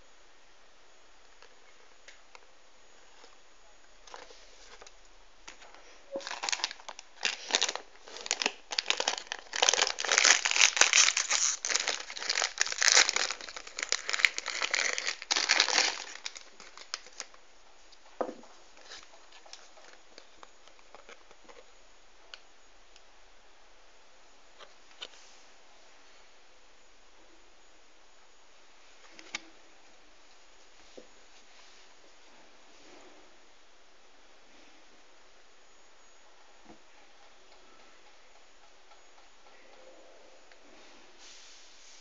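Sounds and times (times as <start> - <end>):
plastic foil bag crinkling: 5.5 - 17.4.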